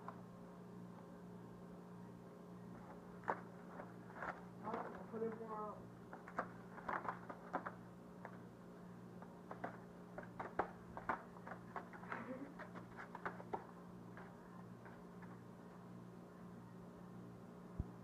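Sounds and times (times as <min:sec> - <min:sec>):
steady low hum: 0:00.0 - 0:18.0
cat paws and claws tapping: 0:09.2 - 0:15.4.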